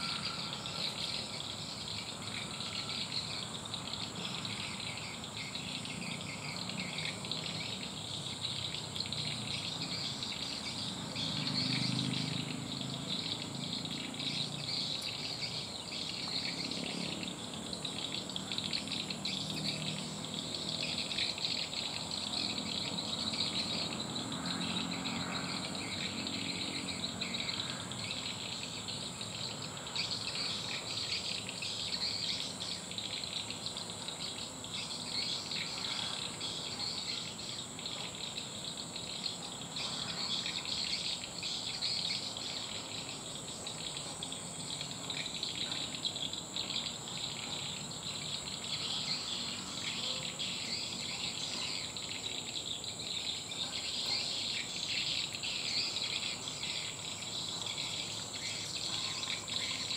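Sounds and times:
insect high-pitched trill: 0.0s - 59.9s
rapid insect chirping: 0.0s - 59.9s.

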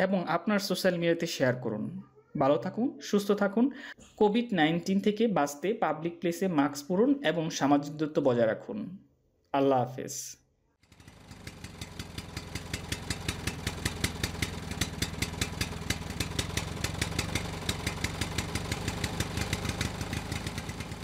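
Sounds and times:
engine idling with rapid ticking: 10.8s - 21.0s.

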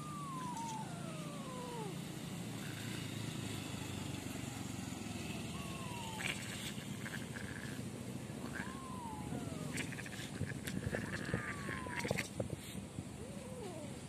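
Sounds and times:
kitten mewing: 0.0s - 2.0s, 5.6s - 7.8s, 8.4s - 12.3s, 13.2s - 14.0s
steady low hum: 0.0s - 3.4s, 5.5s - 14.0s.

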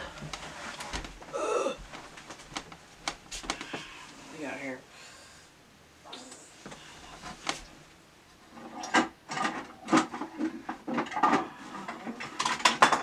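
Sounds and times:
hard objects clattering: 8.6s - 13.0s.

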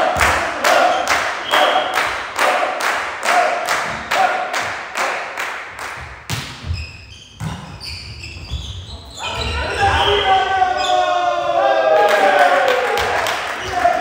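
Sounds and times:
rhythmic hand clapping: 0.0s - 6.1s, 12.1s - 14.0s
shoe squeaks: 6.6s - 11.1s.

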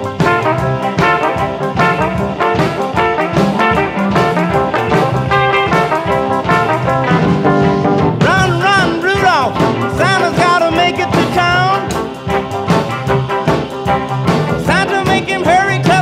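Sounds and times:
upbeat instrumental music with horns: 0.0s - 16.0s.

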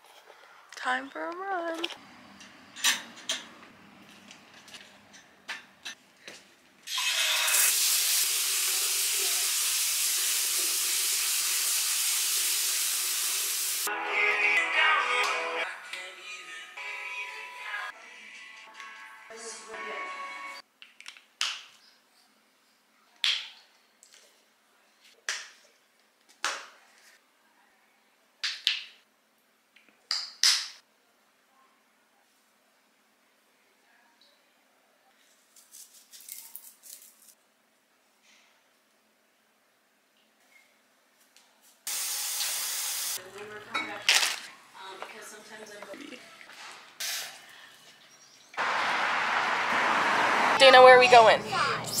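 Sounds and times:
shower water running: 7.0s - 13.9s, 41.9s - 43.2s.

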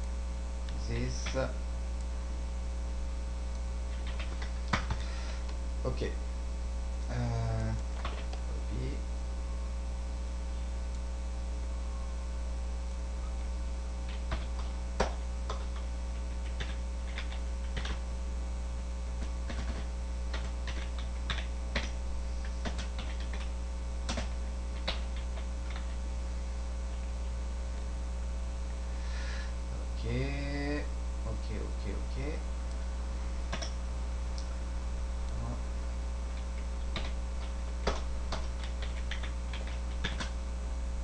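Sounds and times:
electrical mains hum: 0.0s - 41.0s
computer keyboard typing: 3.9s - 5.0s, 7.7s - 8.4s, 14.0s - 18.0s, 19.2s - 26.0s, 33.5s - 33.8s, 36.3s - 40.4s.

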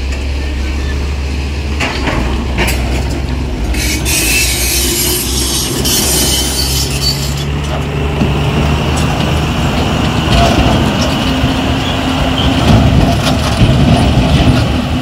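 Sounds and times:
diesel truck engine running: 0.0s - 6.4s, 7.0s - 15.0s
loud hissing squeal: 3.7s - 7.5s.

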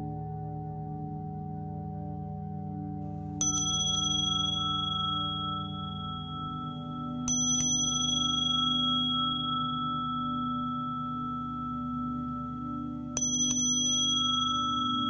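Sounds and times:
singing bowls droning: 2.7s - 15.0s
small metal bells ringing: 3.4s - 15.0s.

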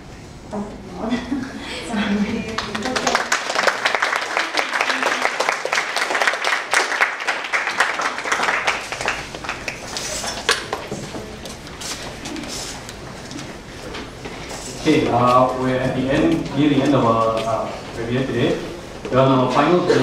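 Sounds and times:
audience applauding: 2.5s - 10.9s.

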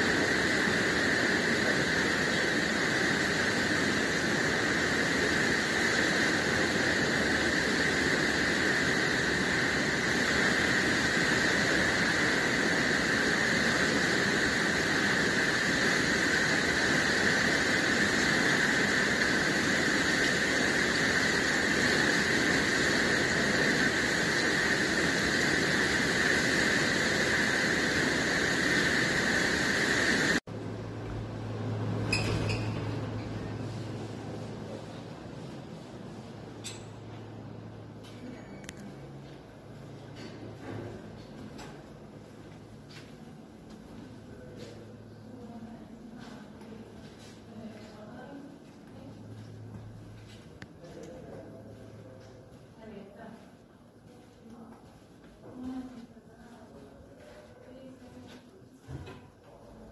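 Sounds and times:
spa pool hall rushing noise: 0.0s - 59.9s.

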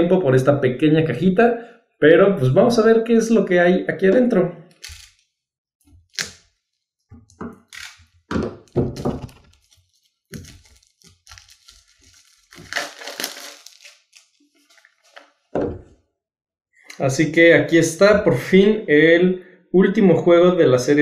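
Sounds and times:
plastic wrap tearing and crinkling: 4.8s - 5.3s, 7.6s - 15.5s.

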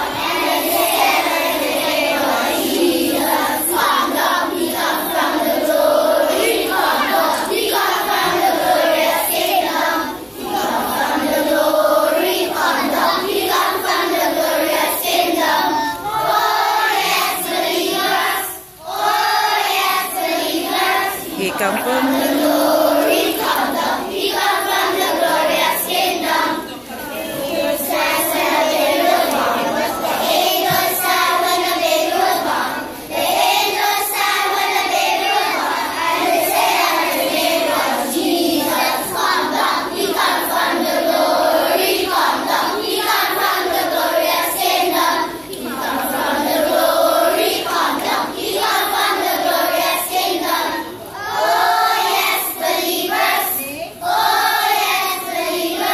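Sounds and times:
children's choir singing a carol: 0.0s - 55.9s.

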